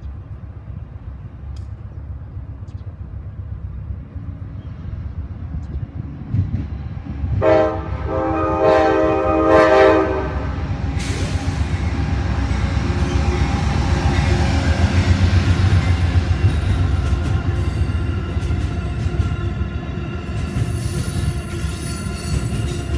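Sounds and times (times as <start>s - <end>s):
idling diesel locomotives rumble: 0.0s - 22.9s
passing train rushing hiss: 0.4s - 22.9s
diesel train horn chord: 7.3s - 10.8s.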